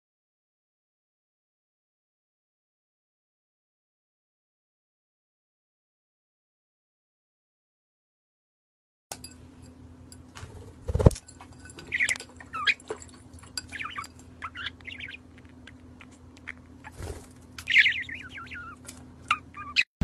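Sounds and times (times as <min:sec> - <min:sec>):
claws and beak clicking on glass: 0:11.2 - 0:16.9
parrot chirping: 0:11.9 - 0:12.9, 0:13.6 - 0:17.0, 0:17.6 - 0:19.9.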